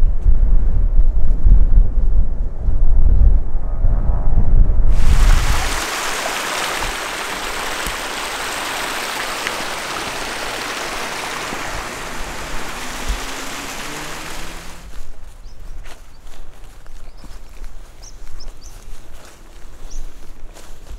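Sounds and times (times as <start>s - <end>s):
wind buffeting microphone: 0.0s - 20.3s
rushing stream water: 5.0s - 15.0s.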